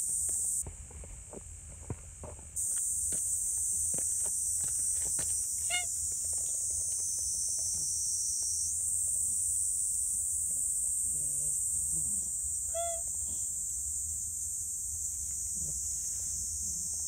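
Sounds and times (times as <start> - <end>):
high insect buzz: 0.0 - 0.6, 2.6 - 17.0
cat meowing: 5.7 - 5.9, 12.7 - 13.1.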